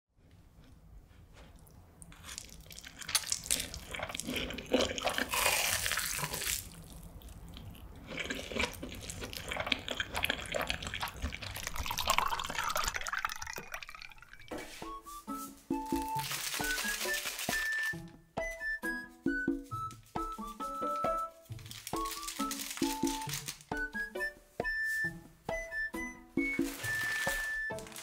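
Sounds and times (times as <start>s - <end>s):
wet chewing and smacking: 0.6s - 14.6s
slurping noodles: 2.2s - 6.8s, 7.4s - 12.9s
crisp crunching clicks: 16.0s - 18.0s, 21.6s - 23.7s.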